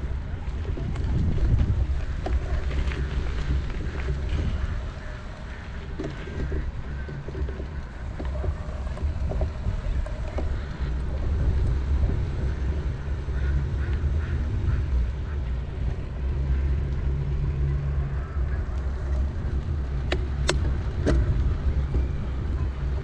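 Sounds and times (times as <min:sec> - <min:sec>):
bicycle tyres on pavement: 0:00.0 - 0:23.0
wind rumble: 0:00.0 - 0:23.0
duck quacks: 0:13.3 - 0:14.9.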